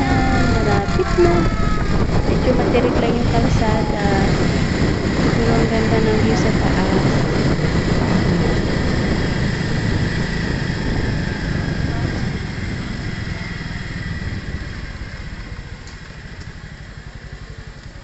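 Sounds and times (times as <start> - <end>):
wind rushing over microphone: 0.0 - 17.4
motorcycle engine running: 0.0 - 18.0.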